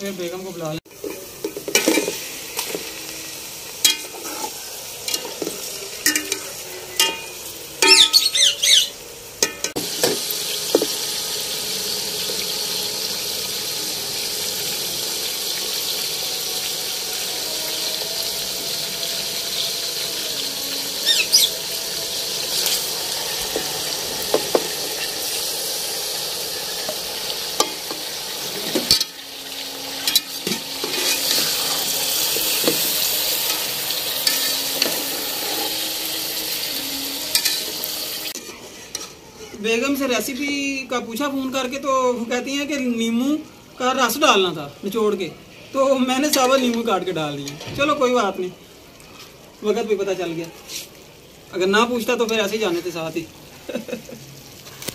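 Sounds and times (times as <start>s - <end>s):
chicken sizzling in hot oil: 0.0s - 45.2s, 45.8s - 54.9s
metal spatula scraping a pot: 3.8s - 8.3s, 22.2s - 22.9s, 27.6s - 39.2s.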